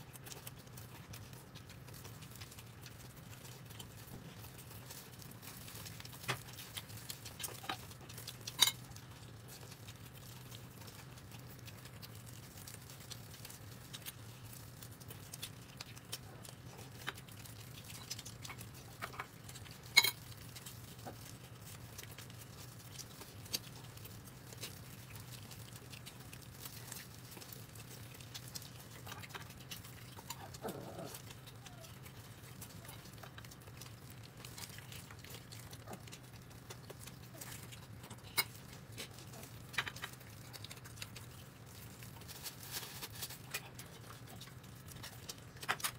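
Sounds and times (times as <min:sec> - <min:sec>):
quiet chewing: 0:00.0 - 0:45.9
utensils clicking on dishes: 0:08.5 - 0:08.8, 0:19.9 - 0:20.2.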